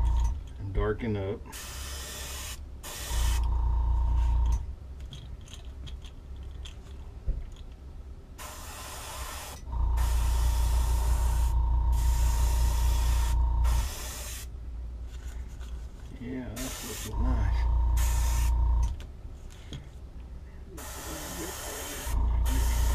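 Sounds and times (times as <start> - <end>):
air compressor motor humming: 0.0 - 0.4, 1.5 - 4.6, 8.4 - 14.5, 16.6 - 19.0, 20.8 - 22.9
airbrush spraying: 1.5 - 3.5, 8.4 - 14.5, 16.6 - 17.2, 17.9 - 18.7, 20.8 - 22.9.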